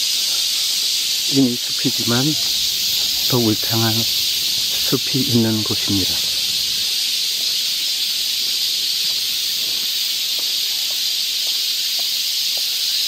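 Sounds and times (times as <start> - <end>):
cicadas buzzing: 0.0 - 13.0.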